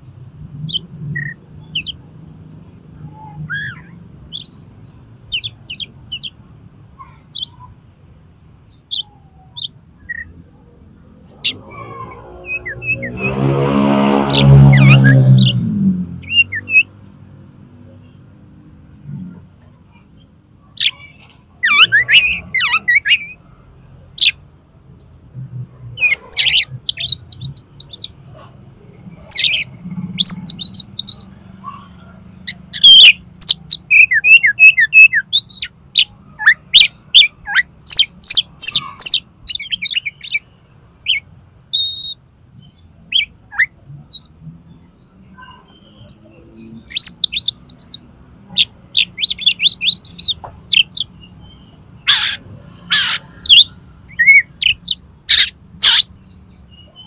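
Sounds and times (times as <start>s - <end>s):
bird singing high chirps: 0.6s - 2.0s, 3.0s - 6.4s, 8.7s - 10.4s, 11.3s - 16.9s, 20.8s - 23.5s, 26.0s - 28.4s, 29.2s - 57.0s.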